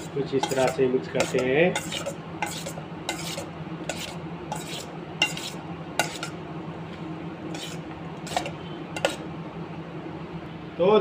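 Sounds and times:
spoon scraping metal bowl: 0.0s - 6.4s, 7.5s - 9.3s
steady low hum: 0.0s - 11.0s.

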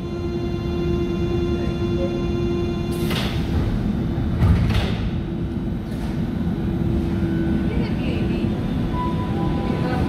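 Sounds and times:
train rumbling: 0.0s - 10.0s
sliding doors closing: 2.9s - 5.2s.

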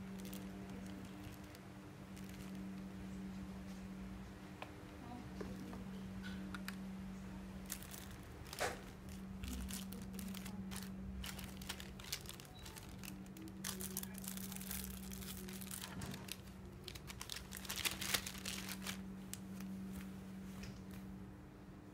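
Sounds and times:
plastic bag crinkling: 0.0s - 2.9s, 7.6s - 20.1s
steady low hum: 0.0s - 21.9s.

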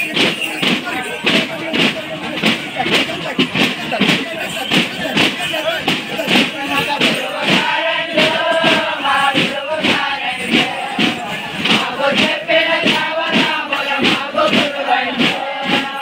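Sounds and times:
hand-beaten frame drums: 0.0s - 16.0s
men chanting together: 7.0s - 16.0s.

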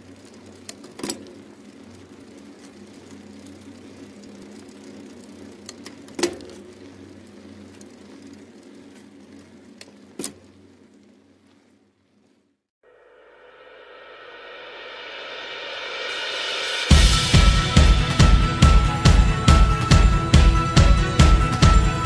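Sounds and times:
low drone: 12.9s - 22.0s.

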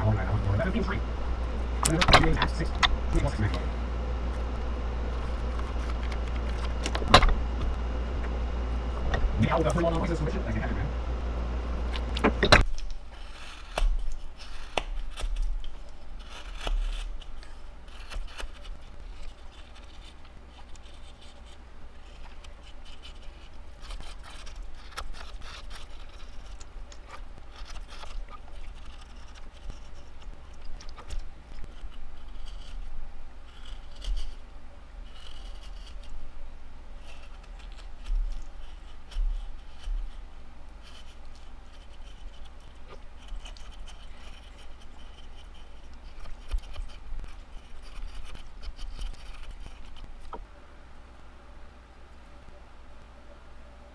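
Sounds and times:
steady low hum: 0.0s - 53.9s
knife whittling wood: 11.7s - 36.3s, 37.0s - 50.5s.

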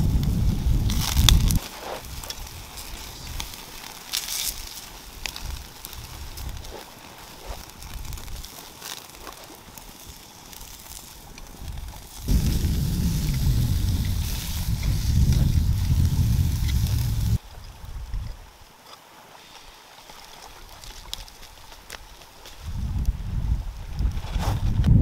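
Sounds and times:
wind rumbling on microphone: 0.0s - 3.6s, 5.0s - 8.5s, 10.1s - 18.7s, 22.6s - 25.0s
sharp fire pops: 0.0s - 17.4s
campfire crackling: 0.0s - 24.9s.

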